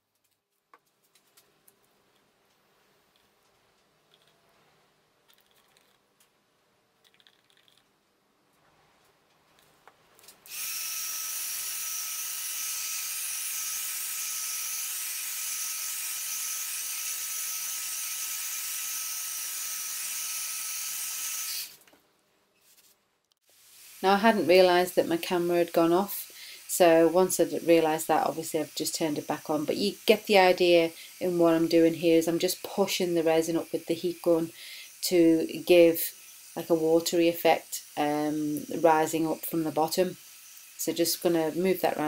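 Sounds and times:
heat gun fan whine: 10.4 - 21.8, 23.6 - 42.0.

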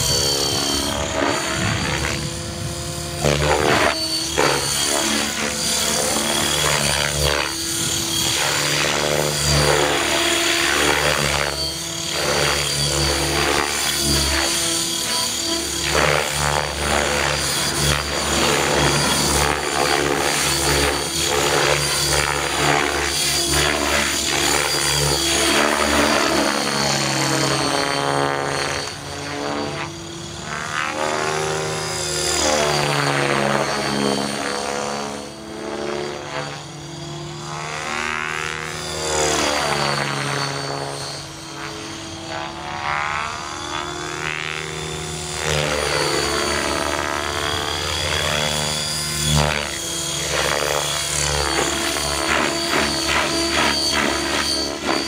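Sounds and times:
rc helicopter motor whining: 0.0 - 55.0.

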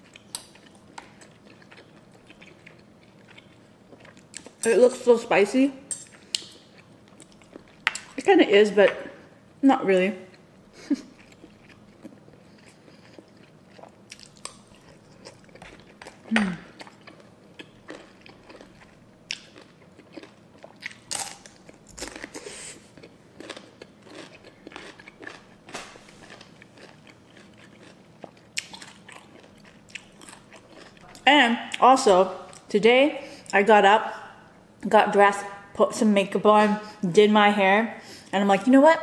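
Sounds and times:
crunching and chewing: 0.0 - 4.7, 5.9 - 8.2, 10.3 - 31.8
person humming: 16.3 - 16.7.

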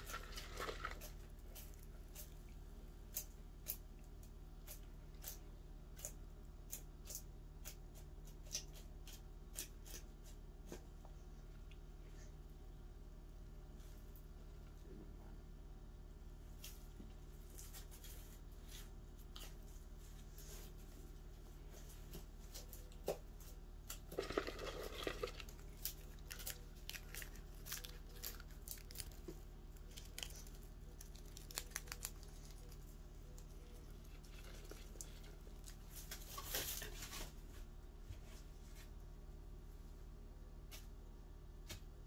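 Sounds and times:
leaf crunching: 0.0 - 2.3, 23.9 - 37.4.

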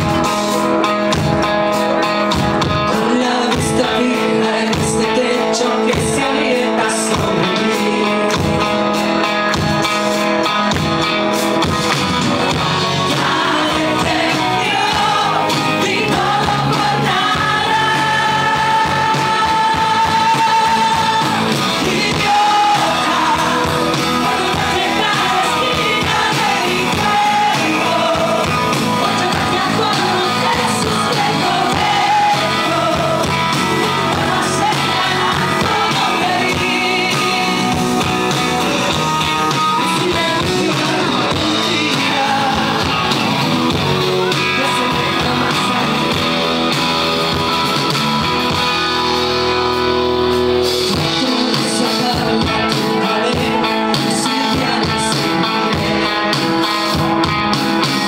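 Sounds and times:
band accompaniment: 0.0 - 58.0
strummed acoustic guitar: 0.0 - 58.0
woman singing: 2.9 - 8.6, 13.0 - 39.0, 39.8 - 43.2, 44.3 - 46.3, 50.9 - 55.8.

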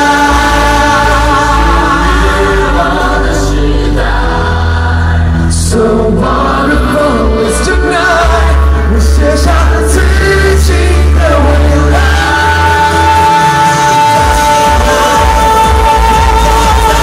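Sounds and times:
bass-heavy musical accompaniment: 0.0 - 17.0
male vocal group singing: 0.0 - 17.0.

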